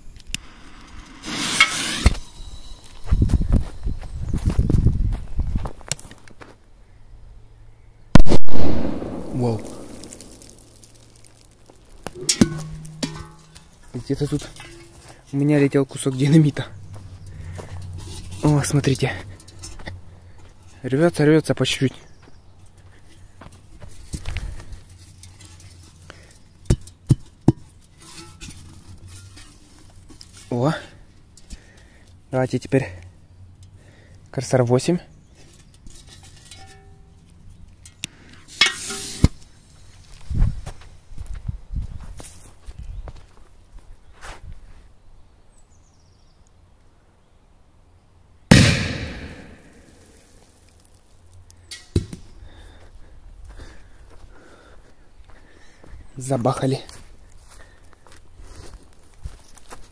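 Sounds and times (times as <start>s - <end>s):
firecracker crackling burst: 0.4s - 2.2s, 8.2s - 11.6s
firecracker sharp pops: 8.2s - 10.9s, 48.5s - 49.9s.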